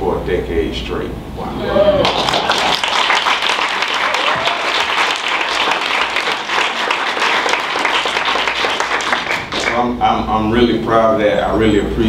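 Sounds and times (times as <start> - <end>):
audience applauding: 1.9 - 9.9.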